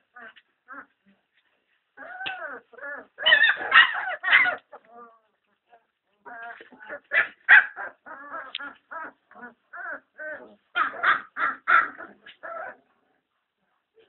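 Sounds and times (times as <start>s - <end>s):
puppies yelping and whining: 2.0s - 5.2s, 6.2s - 12.8s.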